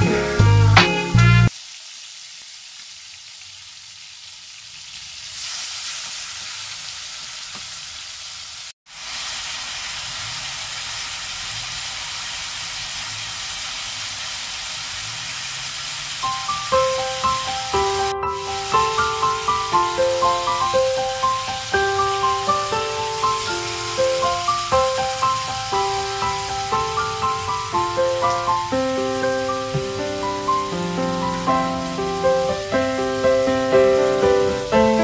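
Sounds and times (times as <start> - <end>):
background music: 0.0 - 1.5, 16.2 - 35.0
meat sizzling in a wok: 0.0 - 35.0.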